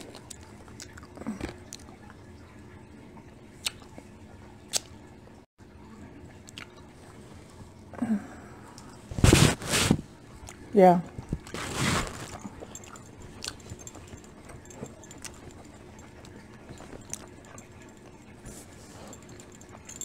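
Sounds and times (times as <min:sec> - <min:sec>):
soft wet chewing: 0:00.0 - 0:02.5, 0:03.2 - 0:05.0, 0:06.3 - 0:07.9, 0:10.3 - 0:20.0.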